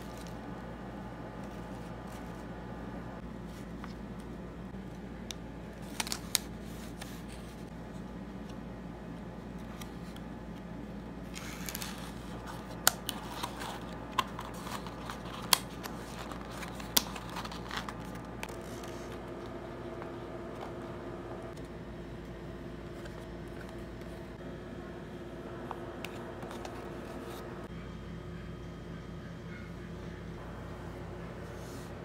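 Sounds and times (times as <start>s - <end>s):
low room hum: 0.0s - 32.0s
cardboard flaps and paper rustling: 11.3s - 20.8s.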